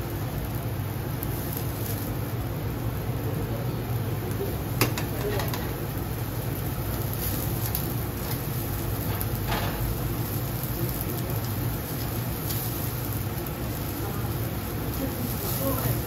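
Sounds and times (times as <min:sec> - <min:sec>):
low grill hum: 0:00.0 - 0:16.0
meat sizzling on grill: 0:00.0 - 0:16.0
metal tongs clicking on grate: 0:04.8 - 0:05.7.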